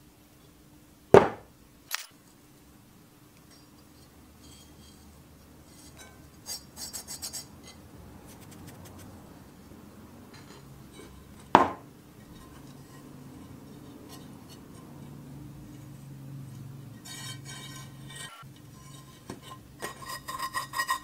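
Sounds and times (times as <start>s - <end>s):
cast iron pan knock: 1.2s - 1.5s, 11.5s - 11.9s
metal lid scraping pan: 3.6s - 6.7s, 12.2s - 15.2s, 17.0s - 21.0s.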